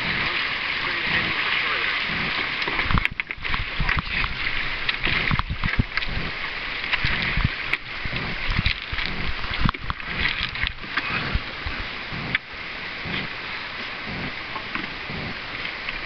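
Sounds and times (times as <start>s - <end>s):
hull scraping on stones: 0.0s - 12.4s
shallow river water rushing: 0.0s - 16.0s.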